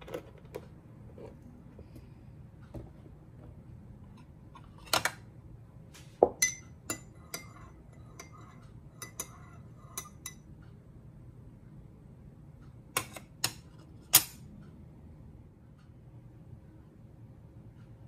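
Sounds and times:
metal spoon clinking ceramic cup: 0:06.4 - 0:10.4.

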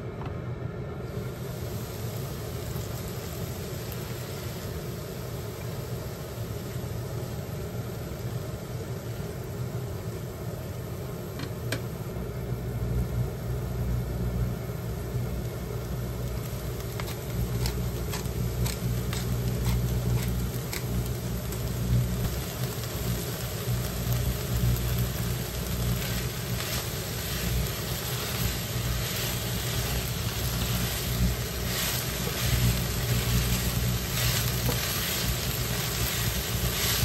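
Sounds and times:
steady low rumble: 0:01.0 - 0:37.0
food sizzling in a pan: 0:01.1 - 0:37.0
spatula scraping a pan: 0:16.8 - 0:21.0, 0:26.0 - 0:37.0.

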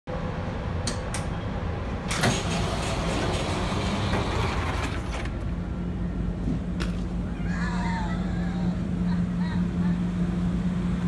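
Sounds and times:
diesel engine humming: 0:00.1 - 0:11.0.

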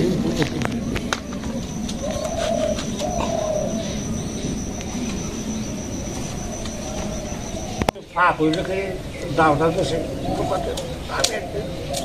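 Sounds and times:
dove cooing: 0:00.0 - 0:12.0
thin high-pitched tone: 0:00.5 - 0:07.9.

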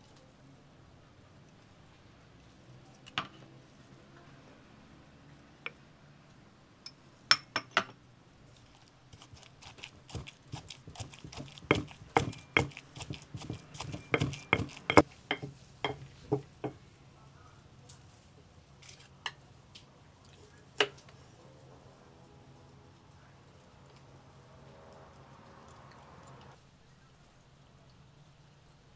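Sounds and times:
pestle pounding in stone mortar: 0:09.2 - 0:16.8
knife tapping wooden board: 0:10.1 - 0:16.8.

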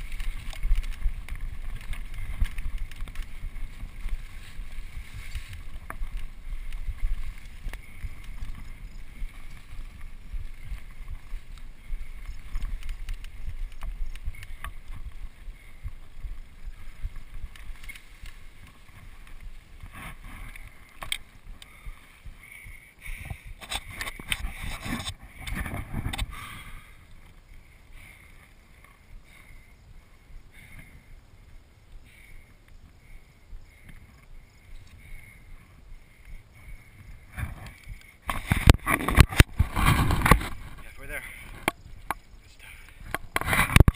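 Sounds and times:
bike jolting on bumpy track: 0:00.0 - 0:27.3, 0:37.3 - 0:42.2
grass brushing against bike: 0:00.0 - 0:30.1, 0:37.1 - 0:43.9
wind on microphone: 0:00.0 - 0:32.2, 0:32.8 - 0:43.9
bike rattling: 0:00.0 - 0:43.9.

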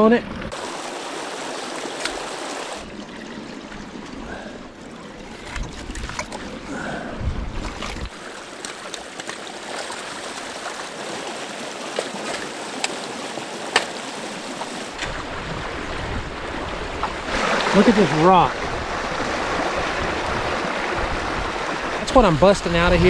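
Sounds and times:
creek water rushing: 0:00.5 - 0:23.0
sticks snapping: 0:13.7 - 0:14.0.

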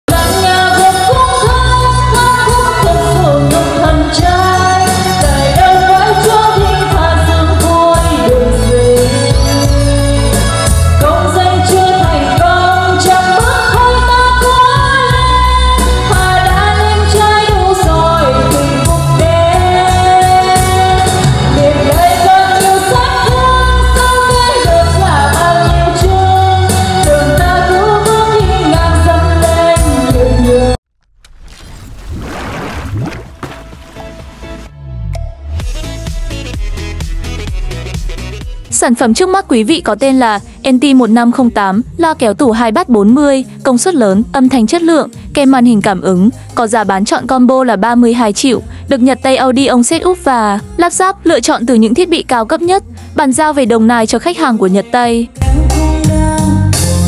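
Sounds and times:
pop backing track with heavy bass: 0:00.1 - 0:30.8, 0:33.7 - 0:39.2, 0:54.7 - 0:57.0
woman singing karaoke: 0:00.1 - 0:30.8, 0:38.7 - 0:57.0.

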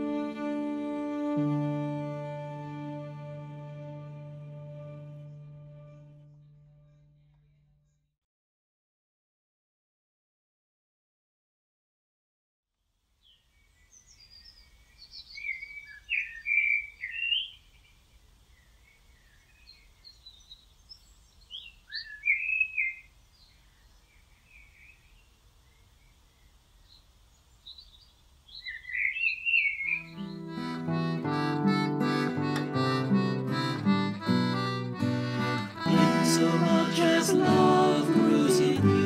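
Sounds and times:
harmonica music: 0:00.0 - 0:06.9, 0:30.0 - 0:39.0
songbird warbling: 0:13.8 - 0:17.7, 0:18.6 - 0:30.5.

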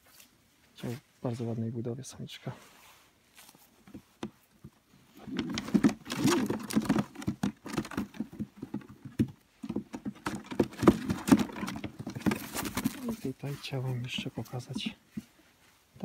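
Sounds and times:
wooden basket lid rattling: 0:03.9 - 0:15.3
pigeons scrabbling in basket: 0:05.2 - 0:13.4.

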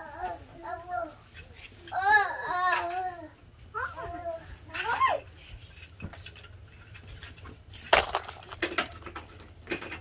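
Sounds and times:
clatter of hard knocks and clicks: 0:07.9 - 0:10.0.

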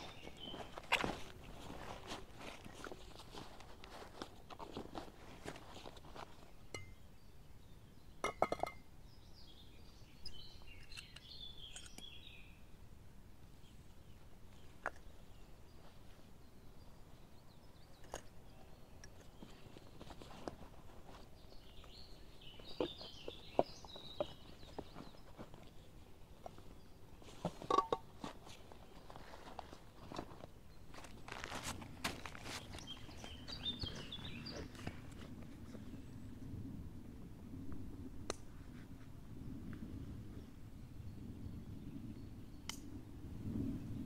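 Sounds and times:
bird singing: 0:06.6 - 0:12.7, 0:21.1 - 0:27.7, 0:32.3 - 0:35.0.

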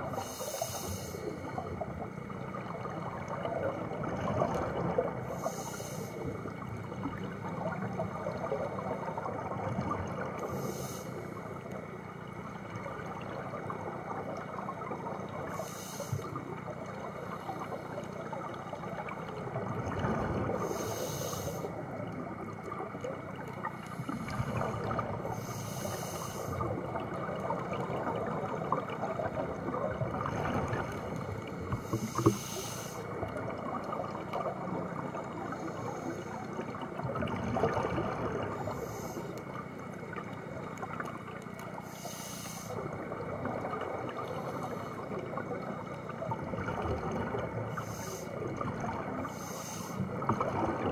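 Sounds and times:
exhaled air bubbling: 0:00.0 - 0:50.9
regulator breathing hiss: 0:00.1 - 0:01.6, 0:05.3 - 0:06.3, 0:10.4 - 0:11.4, 0:15.5 - 0:16.4, 0:20.6 - 0:21.8, 0:25.3 - 0:26.7, 0:31.7 - 0:33.2, 0:38.5 - 0:39.4, 0:41.8 - 0:42.9, 0:47.7 - 0:48.5, 0:49.2 - 0:50.3.

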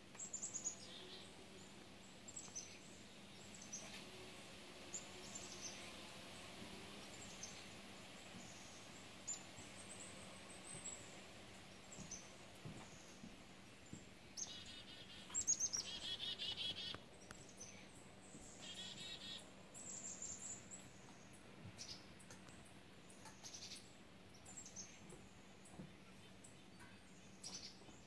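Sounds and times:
chickadees calling: 0:14.4 - 0:17.0, 0:18.4 - 0:19.5.

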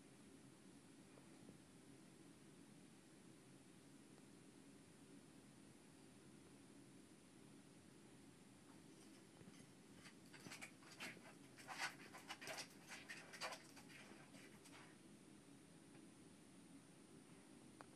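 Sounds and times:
claws scratching on glass: 0:09.0 - 0:14.9.

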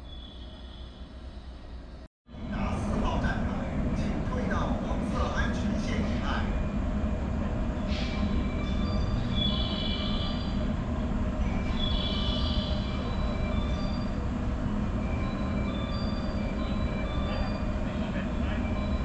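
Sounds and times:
train rumbling on rails: 0:00.0 - 0:19.0
metallic wheel squeal: 0:07.9 - 0:10.6, 0:11.4 - 0:14.3, 0:15.0 - 0:17.8.

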